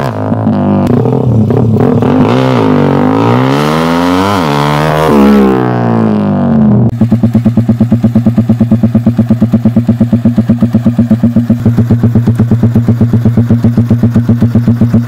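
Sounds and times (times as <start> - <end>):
motorcycle engine idling: 6.6 - 15.0.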